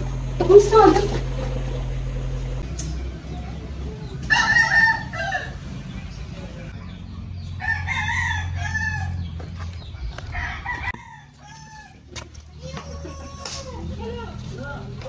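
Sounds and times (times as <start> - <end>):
rooster crowing: 4.2 - 5.7, 7.6 - 9.3, 10.1 - 12.2.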